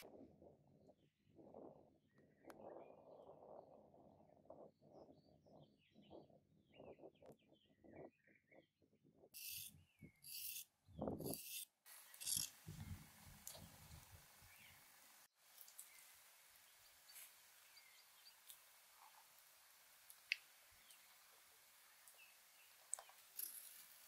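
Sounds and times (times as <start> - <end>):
birds chirping faintly: 0.7 - 24.0
knife scraping carrot skin: 10.3 - 12.5.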